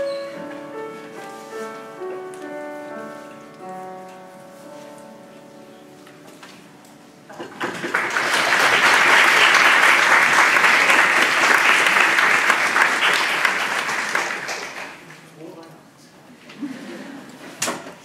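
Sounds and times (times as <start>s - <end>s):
audience applauding: 7.4s - 15.2s.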